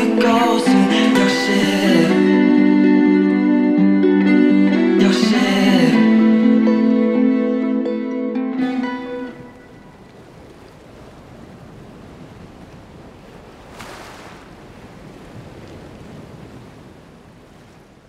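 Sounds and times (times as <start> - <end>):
wind: 8.7 - 18.0
sea waves washing on shore: 9.3 - 18.0.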